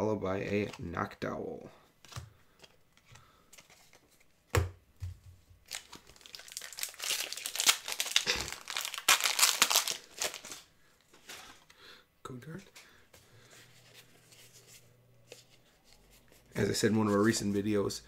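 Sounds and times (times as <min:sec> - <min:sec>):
foil wrapper tearing and crinkling: 0:05.7 - 0:10.7.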